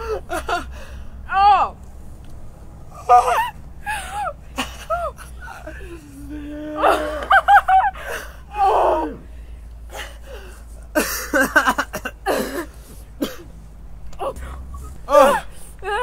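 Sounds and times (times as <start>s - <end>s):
people gasping and breathing hard: 0.0s - 1.2s, 2.9s - 11.2s, 14.1s - 16.0s.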